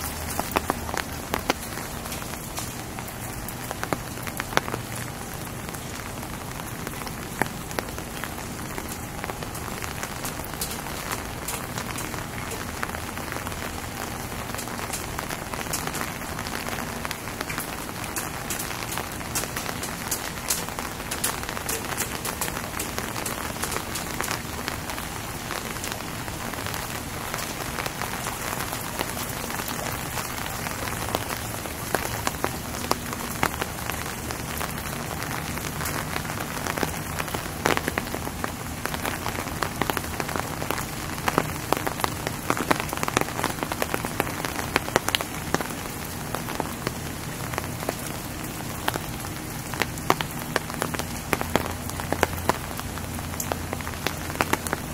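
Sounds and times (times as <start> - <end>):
steady rain falling: 0.0 - 54.9
ticks of nearby raindrops: 0.0 - 54.9.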